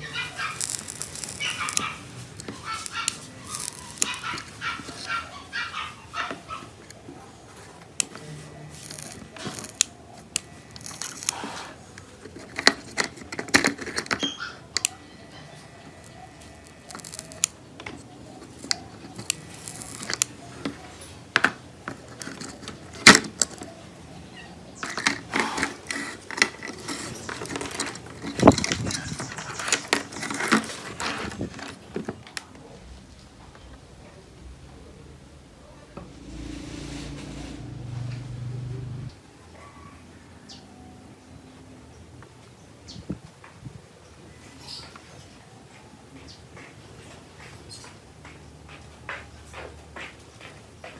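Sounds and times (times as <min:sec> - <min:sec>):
small plastic and metal parts rattling: 0:00.4 - 0:05.1, 0:08.7 - 0:09.9, 0:10.7 - 0:11.4, 0:12.2 - 0:14.4, 0:16.0 - 0:20.8, 0:21.4 - 0:23.7, 0:24.8 - 0:32.2.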